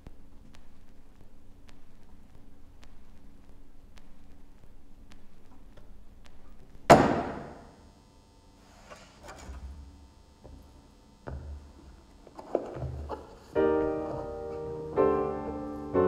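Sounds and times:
scuffing and shuffling: 8.6 - 14.9.

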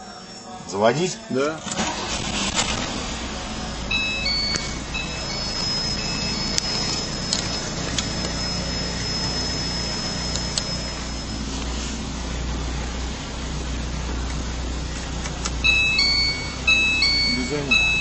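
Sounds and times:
car engine idling: 0.0 - 18.0
thin high tone: 3.3 - 13.0, 15.6 - 18.0.

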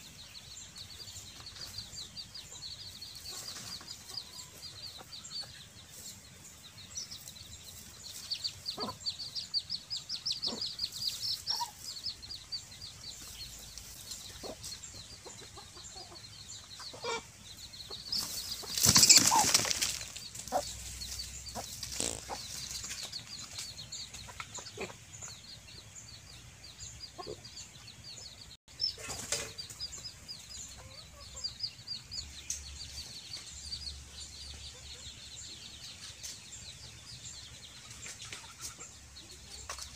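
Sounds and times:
chicken clucks: 1.0 - 25.6, 27.1 - 28.2, 28.8 - 33.6, 34.5 - 39.9
chicken flapping wings: 18.2 - 20.5.

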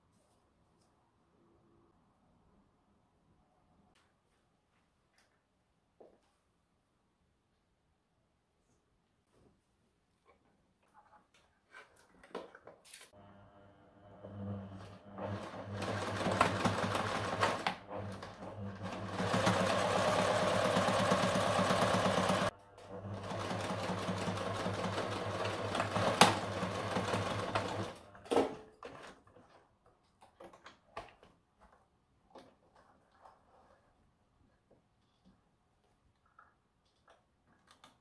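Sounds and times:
sewing machine stitching: 14.1 - 29.2.

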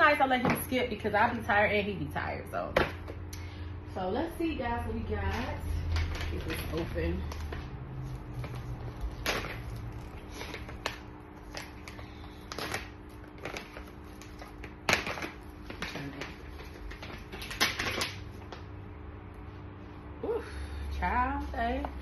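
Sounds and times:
packaging clicks and crinkles: 5.8 - 18.6.

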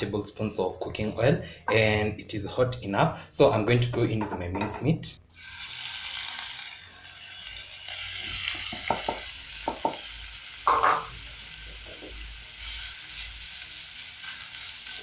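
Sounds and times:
meat sizzling in a frying pan: 5.3 - 15.0.

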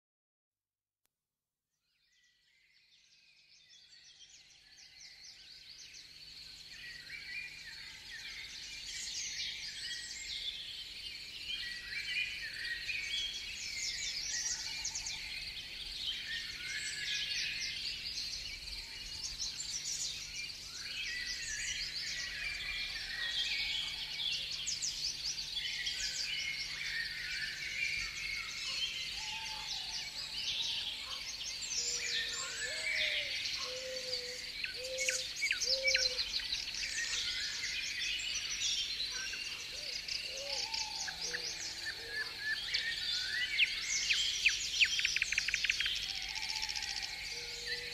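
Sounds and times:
small birds chirping: 3.7 - 47.9.

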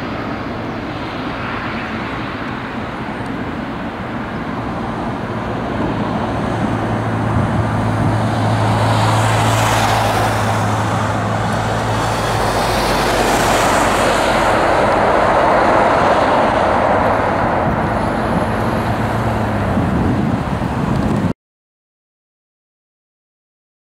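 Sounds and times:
jet engines running: 0.0 - 21.3.

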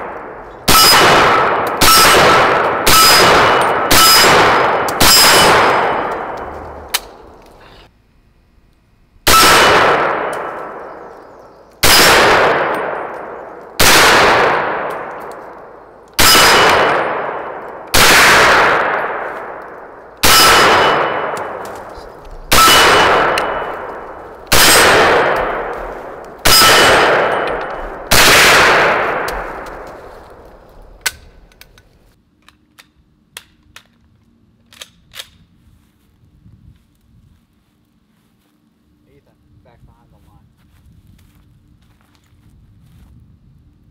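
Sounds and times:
rifle shots: 0.0 - 7.6, 9.2 - 11.1, 11.8 - 31.7
ring of steel plate targets: 0.6 - 7.1, 16.2 - 19.2, 20.2 - 21.9, 22.5 - 29.9
rifle handling clicks: 6.0 - 7.6, 29.2 - 34.0, 34.6 - 35.4.

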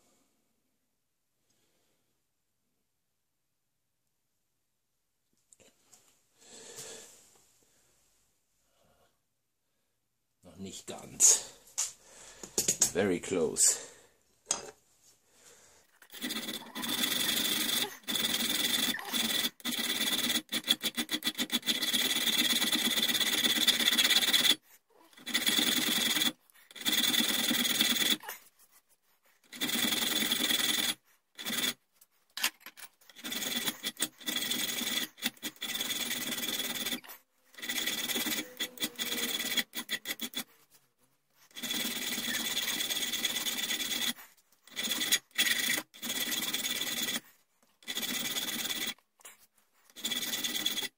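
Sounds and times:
file rasping on steel: 16.0 - 28.2, 29.4 - 31.8, 33.1 - 40.5, 41.4 - 47.2, 47.8 - 49.0, 49.9 - 50.9.

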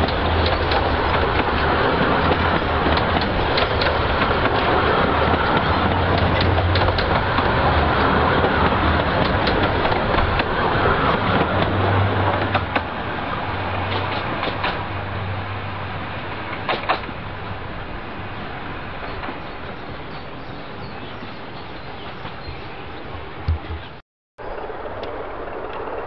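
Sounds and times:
wheels clicking on track: 0.0 - 15.0, 16.4 - 17.2, 23.8 - 26.0
train rumbling: 0.0 - 26.0.

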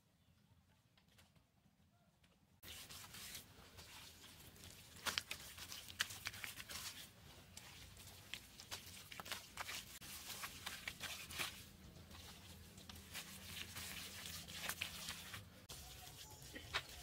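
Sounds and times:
hands plastering mud on wall: 2.6 - 17.0.

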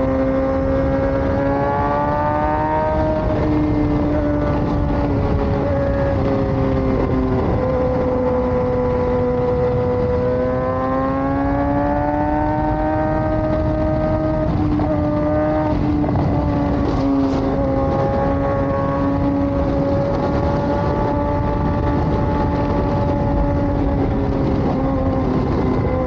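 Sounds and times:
motorcycle engine at speed: 0.0 - 26.0
wind and road rush: 0.0 - 26.0.

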